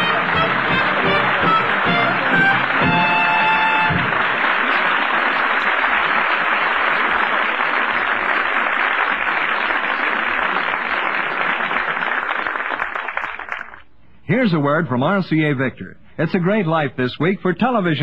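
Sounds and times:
audience applauding: 0.0s - 13.8s.

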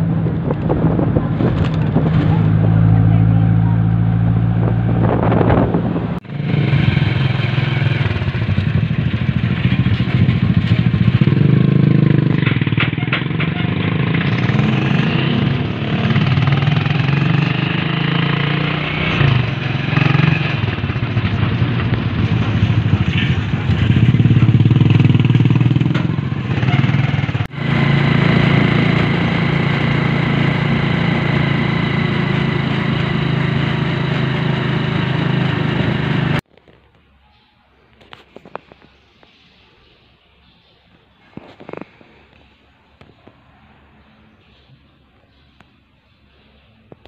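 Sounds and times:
motorcycle engine running: 0.0s - 36.5s.

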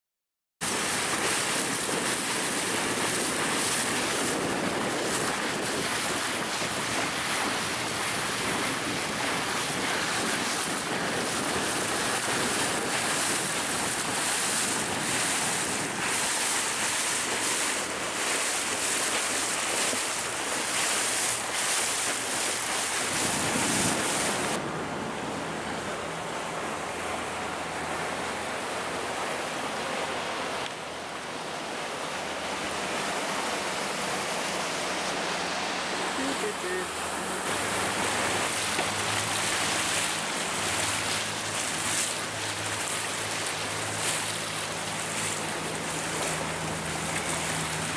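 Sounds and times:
wind buffeting microphone: 0.6s - 27.9s
water rushing past boat hull: 0.6s - 47.9s.

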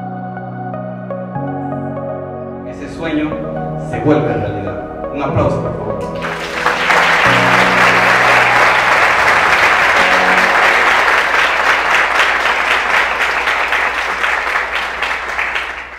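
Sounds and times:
musical notes: 0.0s - 15.9s
audience applauding: 6.0s - 15.9s.

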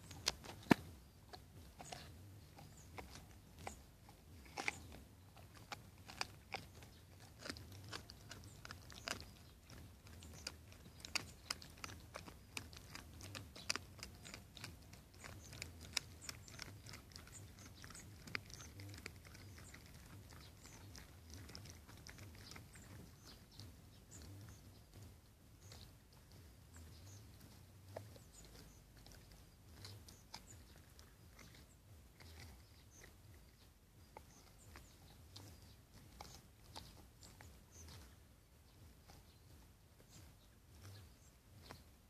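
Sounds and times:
dog gnawing a bone: 0.0s - 41.9s.

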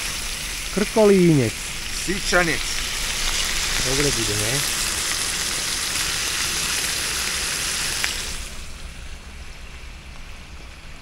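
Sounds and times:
meat sizzling in a frying pan: 0.0s - 8.5s
drizzle hissing: 0.0s - 8.7s.

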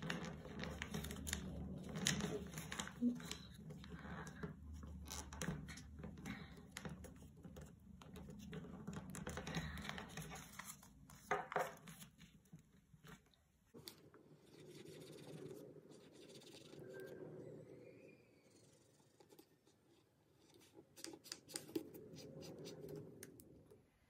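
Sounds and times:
paper crinkling and rustling: 0.0s - 3.8s, 9.2s - 12.4s.

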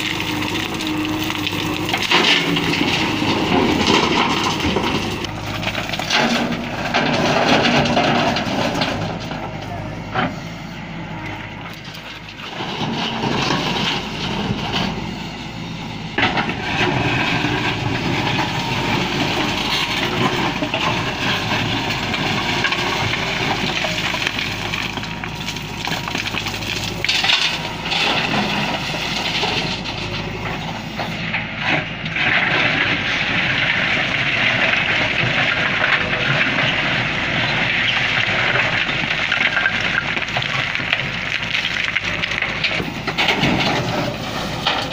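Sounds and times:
bucket scraping through stone: 0.0s - 9.2s
rocks grinding and clattering: 0.0s - 10.5s, 11.3s - 44.9s
diesel engine under load: 0.0s - 44.9s.

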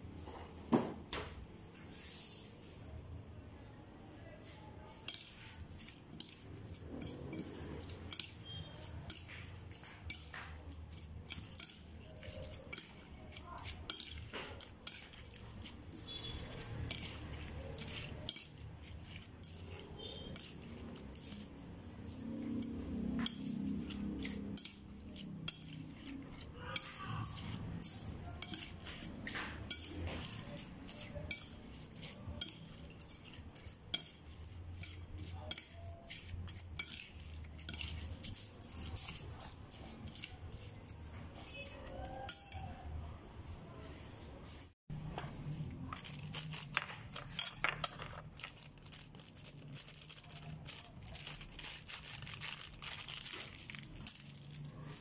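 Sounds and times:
spoon clinking and scraping plate: 4.4s - 42.9s, 45.9s - 48.9s.

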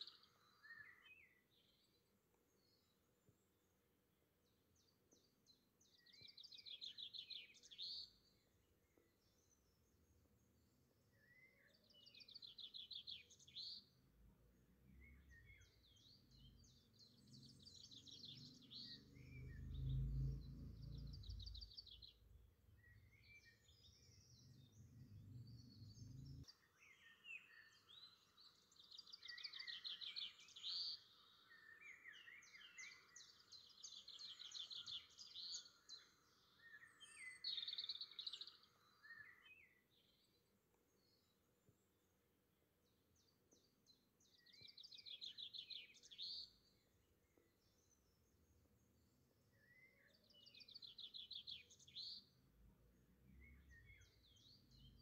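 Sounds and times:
small birds trilling: 14.9s - 40.3s.

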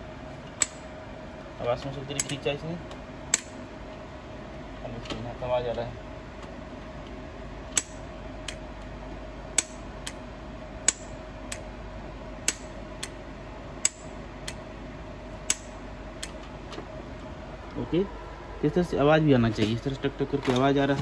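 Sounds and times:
solenoid valve clicking: 7.7s - 8.6s, 10.8s - 11.7s, 12.4s - 13.2s, 13.8s - 14.6s, 15.4s - 16.4s.

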